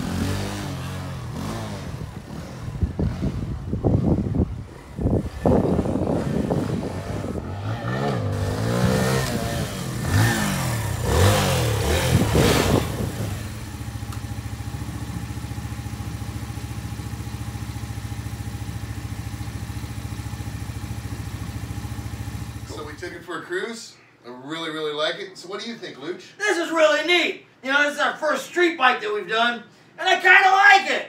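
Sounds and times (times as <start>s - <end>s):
motorcycle engine revving: 0.0s - 23.1s.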